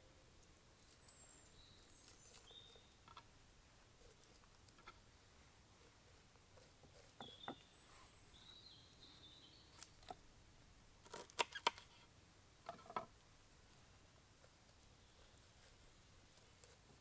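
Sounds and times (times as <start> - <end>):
faint high bird chirps: 0.8 - 3.2, 7.2 - 10.0.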